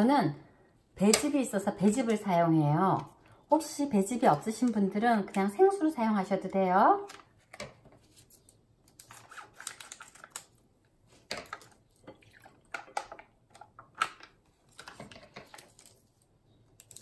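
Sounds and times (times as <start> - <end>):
juice pouring: 11.6 - 13.3.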